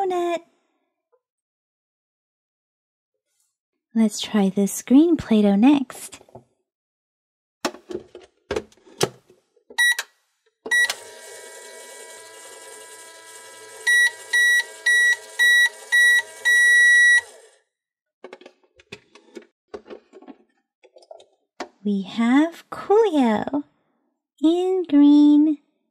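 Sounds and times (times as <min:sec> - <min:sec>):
microwave finishing beeps: 0:09.8 - 0:10.0, 0:10.7 - 0:12.4, 0:13.2 - 0:17.5
toy microwave running hum: 0:10.7 - 0:17.6.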